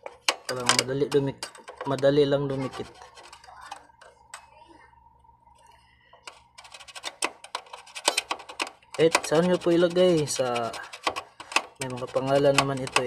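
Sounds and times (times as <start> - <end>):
soldering iron scraping metal: 6.4 - 13.0.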